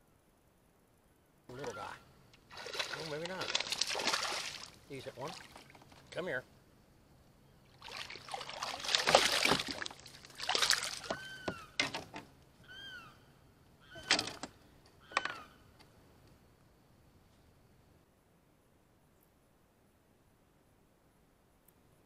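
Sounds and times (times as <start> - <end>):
fish splashing at water surface: 2.5 - 5.8, 7.8 - 11.4.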